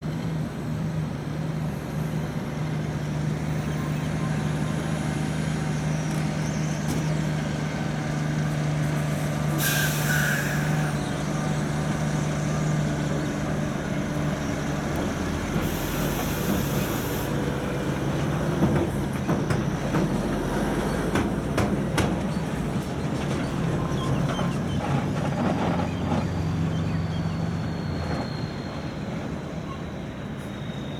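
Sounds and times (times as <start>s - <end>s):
truck diesel engine running: 0.1s - 30.9s
air brake hiss: 9.5s - 11.0s, 15.6s - 17.4s
knocks and clatter: 21.1s - 25.8s.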